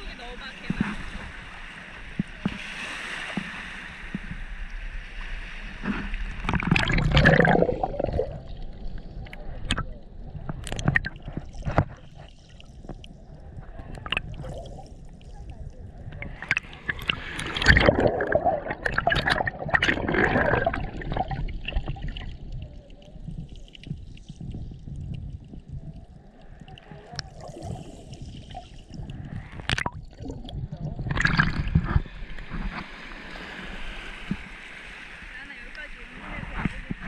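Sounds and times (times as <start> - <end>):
small waves washing: 0.0 - 37.0
muffled underwater gurgling: 5.8 - 33.0.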